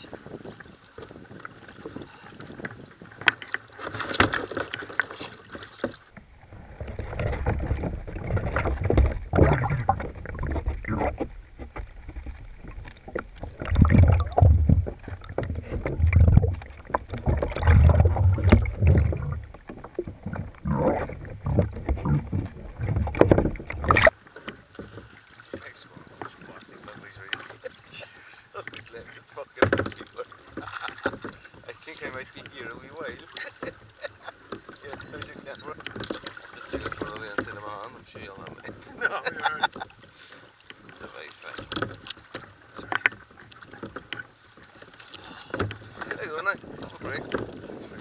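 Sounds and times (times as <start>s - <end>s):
muffled underwater sloshing: 0.0s - 48.0s
sea water lapping: 0.0s - 48.0s
wind: 0.0s - 48.0s
underwater rumbles and thuds: 5.9s - 25.1s, 45.6s - 48.0s.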